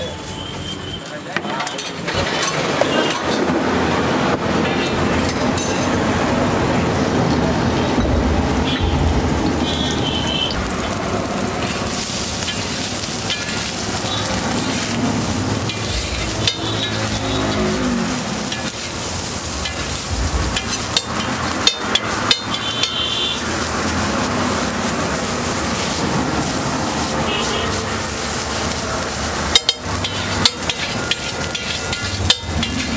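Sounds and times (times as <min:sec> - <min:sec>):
food sizzling on a griddle: 0:06.8 - 0:32.9
spatula tapping griddle: 0:20.5 - 0:23.1, 0:29.4 - 0:32.9
spatula scraping metal: 0:29.5 - 0:32.9.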